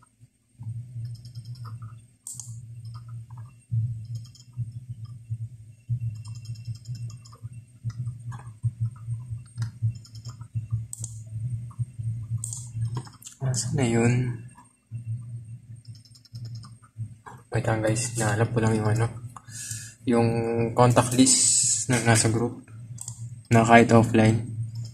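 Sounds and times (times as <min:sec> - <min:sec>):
computer mouse clicking: 0:00.0 - 0:05.3, 0:06.0 - 0:13.4, 0:14.5 - 0:17.5, 0:22.9 - 0:23.6, 0:24.6 - 0:24.9
steady low hum: 0:00.0 - 0:24.9.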